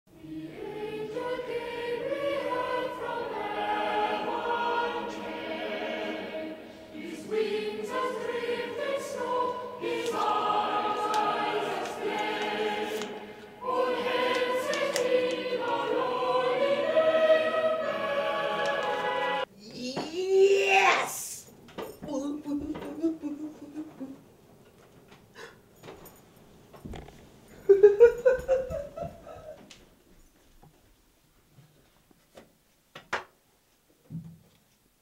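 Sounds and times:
choir singing slow phrases: 0.1s - 19.5s.

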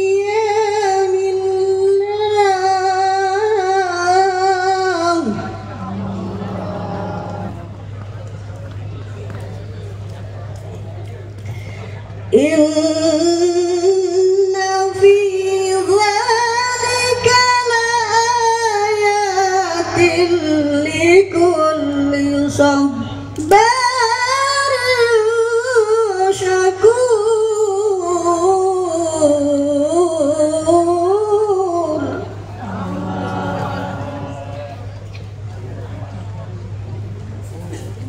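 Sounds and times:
woman chanting through loudspeakers: 0.0s - 7.7s, 12.3s - 34.8s.

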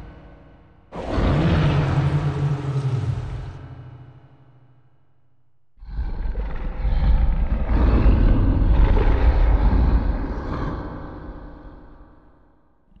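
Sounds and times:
loud low noise: 0.0s - 6.0s.

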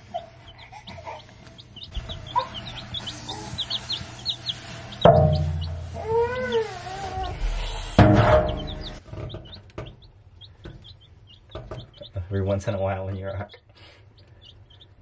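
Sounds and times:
chicks peeping: 0.0s - 15.0s
loud thump: 5.0s - 5.8s.

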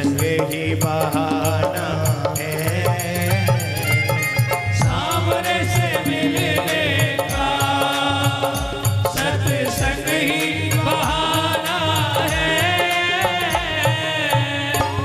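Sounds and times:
steady repeating drum beat: 0.0s - 15.0s
wavering instrumental melody: 3.1s - 11.6s.

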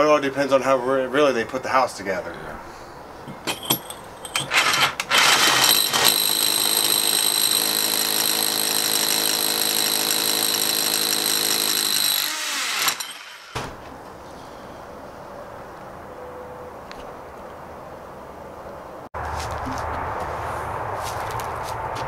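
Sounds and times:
rotary hammer drilling brick: 3.4s - 13.6s.

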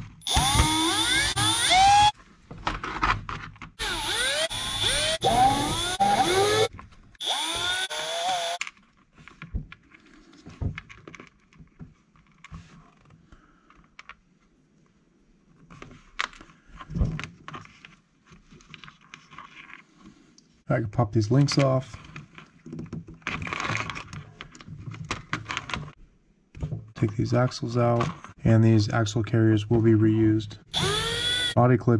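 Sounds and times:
electric screwdriver whirring: 0.2s - 2.2s, 3.8s - 8.6s, 30.7s - 31.6s.

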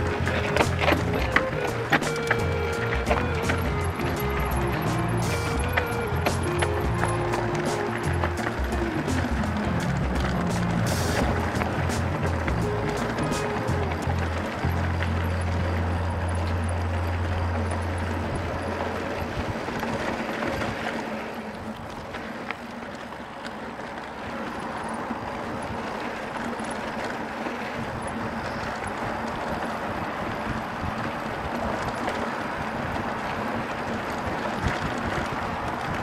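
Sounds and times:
deep steady hum: 0.0s - 19.1s
bike clicks and rattles: 0.0s - 36.0s
bike tyres on dirt trail: 0.0s - 36.0s.

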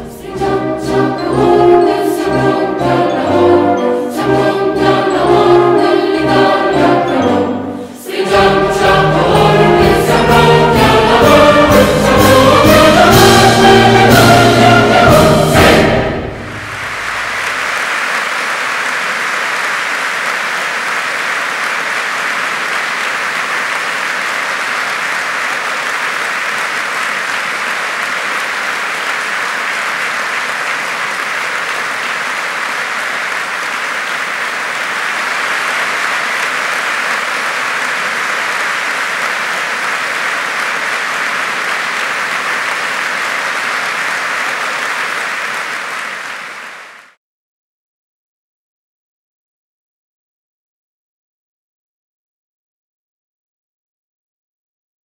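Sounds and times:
large audience applauding: 5.0s - 47.2s.

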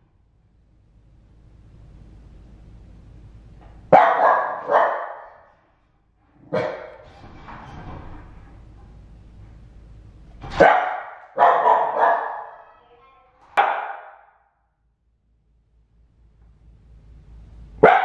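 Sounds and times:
dog barking: 3.9s - 5.5s, 6.5s - 7.0s, 10.6s - 12.8s, 13.6s - 14.4s, 17.8s - 18.0s.

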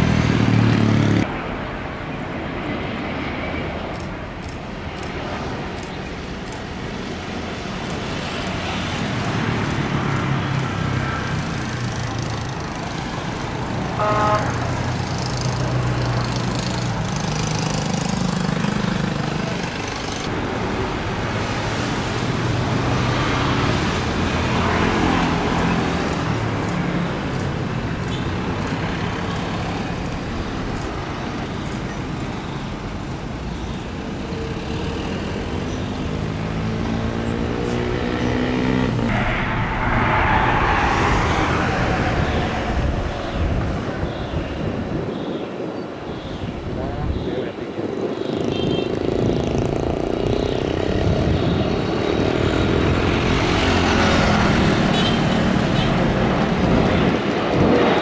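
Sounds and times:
road traffic: 0.0s - 58.0s
horn-like tone: 14.0s - 14.6s
jet engines rumbling: 38.9s - 46.8s, 55.7s - 58.0s.

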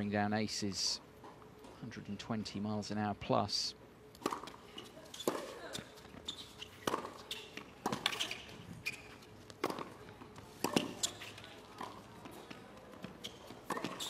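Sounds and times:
tennis ball bounces: 4.2s - 8.5s, 9.4s - 14.0s.

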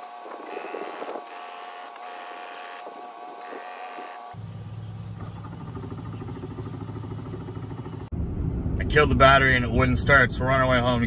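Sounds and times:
vehicle driving rumble from inside: 4.4s - 11.0s.

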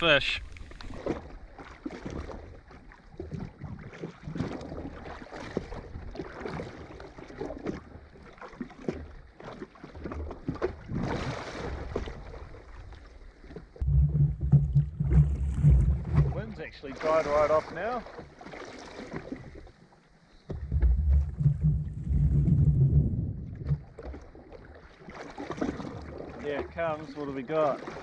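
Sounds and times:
sea water slapping against hull: 0.6s - 19.7s, 20.5s - 28.0s
wind buffeting microphone: 20.5s - 24.0s.

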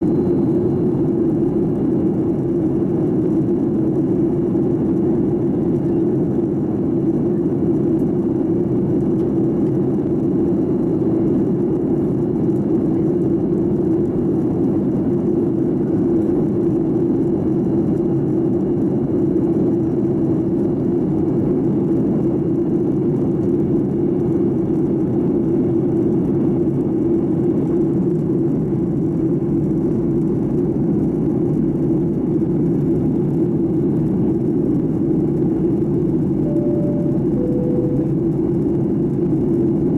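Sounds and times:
airliner cabin engine noise: 0.0s - 39.9s.

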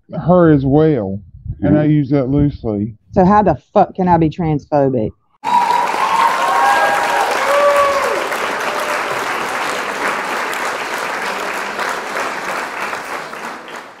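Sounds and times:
crowd applause: 5.4s - 14.0s.

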